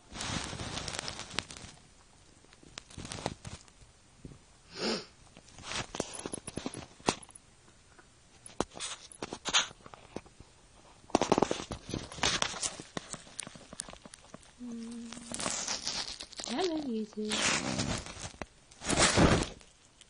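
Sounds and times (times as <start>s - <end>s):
rabbits crunching dry food: 0.0s - 3.8s, 5.4s - 7.4s, 11.1s - 20.0s.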